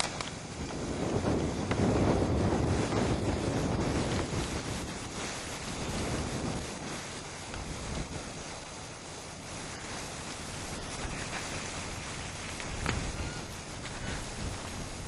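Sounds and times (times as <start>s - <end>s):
wind rushing over microphone: 0.0s - 15.0s.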